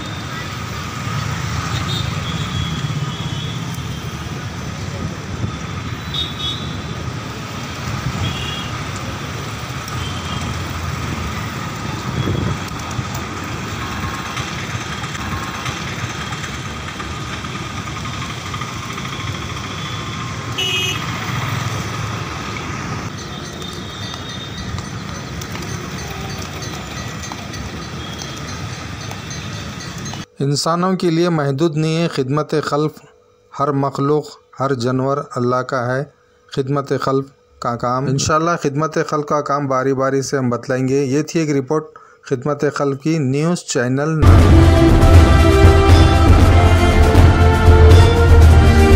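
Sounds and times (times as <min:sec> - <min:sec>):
road traffic with vehicles passing: 0:00.0 - 0:30.3, 0:44.2 - 0:48.9.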